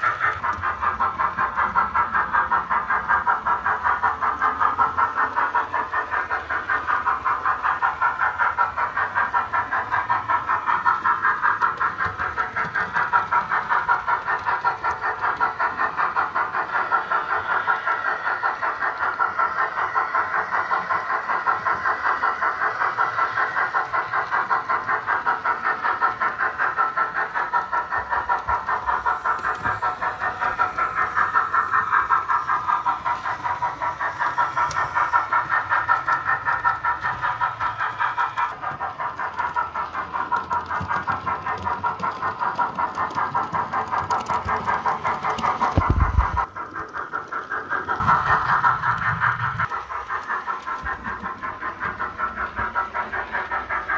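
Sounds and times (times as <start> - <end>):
steam exhaust chuffs from speaker: 48.0 - 49.6.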